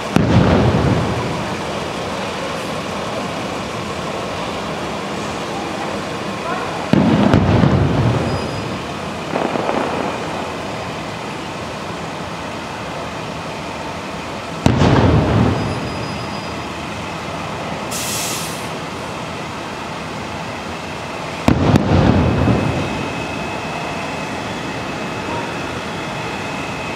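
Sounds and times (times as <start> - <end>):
fireworks booming: 0.0 - 19.1, 20.2 - 26.9
brief high hiss: 17.9 - 18.8.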